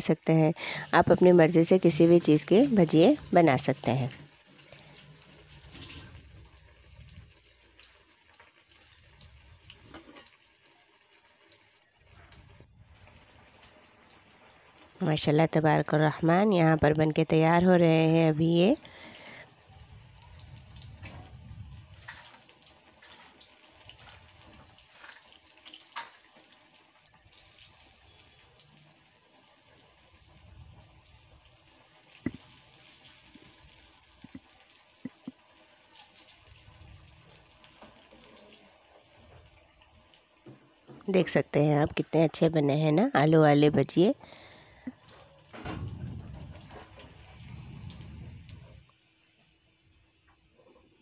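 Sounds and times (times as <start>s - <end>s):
food deep-frying in hot oil: 0.0s - 51.0s
small crackles: 4.1s - 15.0s, 18.7s - 40.9s.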